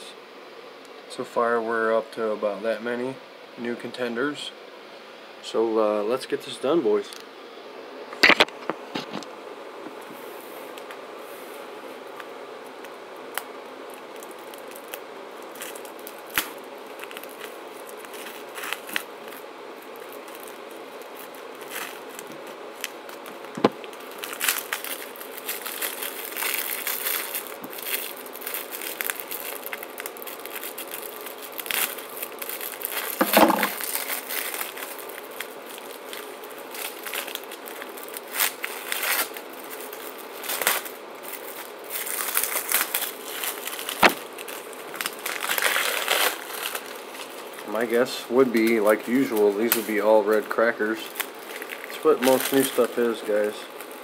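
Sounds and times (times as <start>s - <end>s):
cellophane crinkling and tearing: 12.8s - 54.0s.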